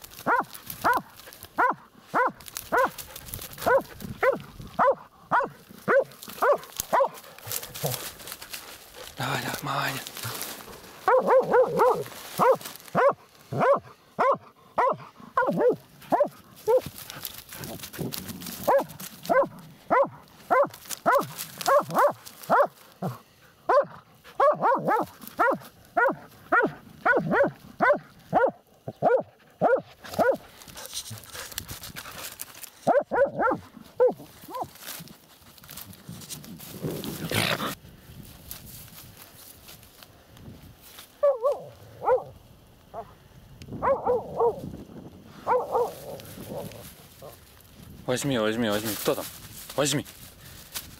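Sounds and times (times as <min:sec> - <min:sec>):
dog barking: 0:00.2 - 0:03.0, 0:03.6 - 0:08.0, 0:11.0 - 0:16.9, 0:18.6 - 0:30.4, 0:32.8 - 0:34.7, 0:41.2 - 0:42.3, 0:42.9 - 0:43.1, 0:43.8 - 0:44.6, 0:45.4 - 0:47.4.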